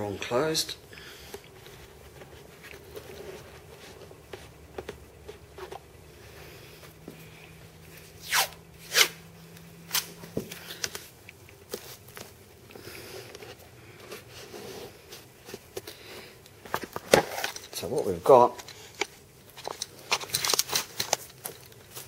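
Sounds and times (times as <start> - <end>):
handling taps and rustles: 1.3 - 6.0, 10.2 - 12.4, 15.1 - 22.0
tape ripping off roll: 8.2 - 9.2.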